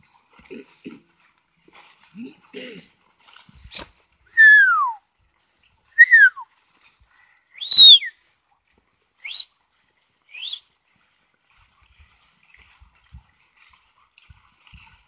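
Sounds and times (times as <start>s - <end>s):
person whistling sliding notes: 4.4s - 5.0s, 6.0s - 6.4s, 7.6s - 8.1s, 9.2s - 9.5s, 10.3s - 10.6s.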